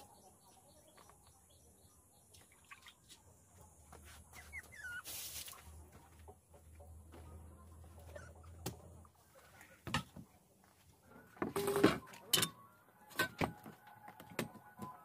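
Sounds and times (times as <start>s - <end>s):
small animal squeaking: 4.3s - 5.2s.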